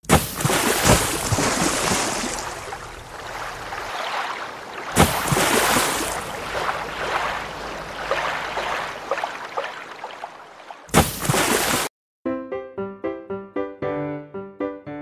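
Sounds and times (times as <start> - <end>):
water rushing and splashing: 0.0 - 11.9.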